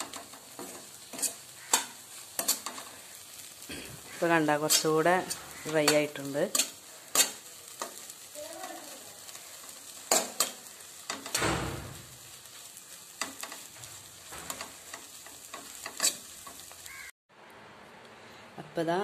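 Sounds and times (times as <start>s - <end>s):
spatula scraping a pan: 0.0s - 8.4s, 9.2s - 11.4s, 12.5s - 17.1s
food sizzling: 0.0s - 17.2s.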